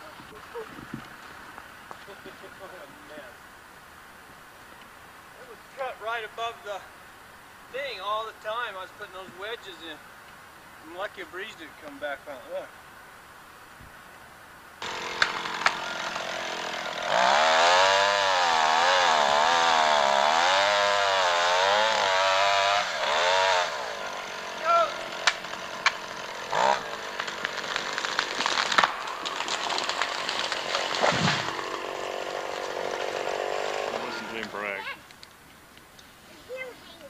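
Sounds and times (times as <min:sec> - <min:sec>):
chainsaw cutting tree trunk: 0:14.8 - 0:34.7.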